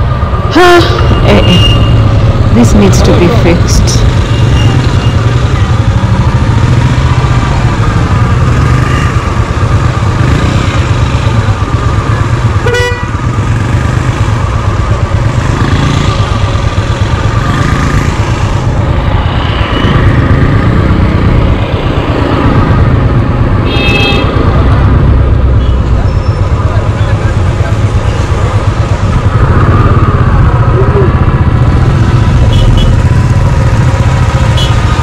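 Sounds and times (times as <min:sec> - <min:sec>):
motorcycle engine running: 0:00.0 - 0:35.0
vehicle horn honking: 0:12.6 - 0:13.2, 0:23.7 - 0:24.3, 0:32.5 - 0:33.0, 0:34.6 - 0:34.8.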